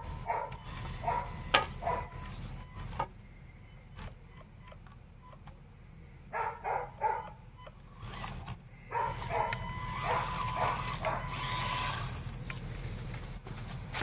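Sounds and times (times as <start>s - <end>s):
dog barking: 0.3s - 2.1s, 6.3s - 7.4s, 8.9s - 11.3s
electric motor whine: 7.8s - 12.6s.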